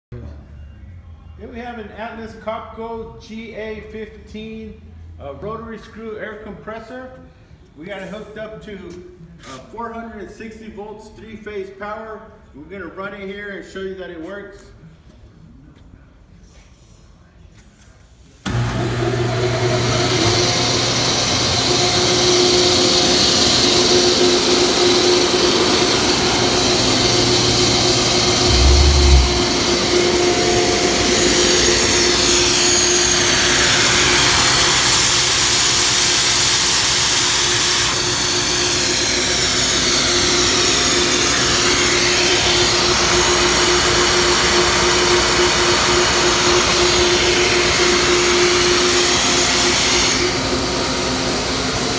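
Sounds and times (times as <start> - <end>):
air compressor running: 18.5 - 51.9.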